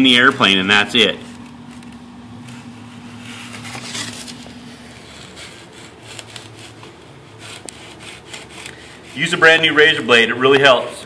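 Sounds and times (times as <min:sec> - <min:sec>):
faint steady hum: 0:00.0 - 0:11.0
knife blade cutting foam: 0:03.0 - 0:09.6.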